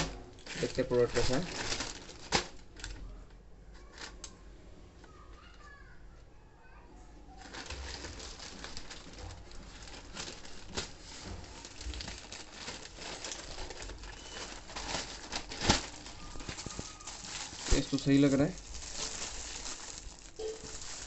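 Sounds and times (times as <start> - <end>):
plastic mailer crinkling: 0.0 - 3.0, 7.4 - 21.0.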